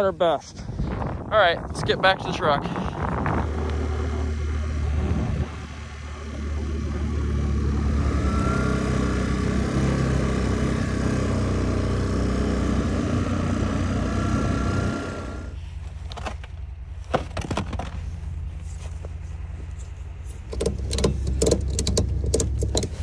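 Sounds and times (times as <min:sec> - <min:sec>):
vehicle engine running: 0:00.0 - 0:23.0
sharp clicks and knocks: 0:16.0 - 0:18.0, 0:20.4 - 0:23.0.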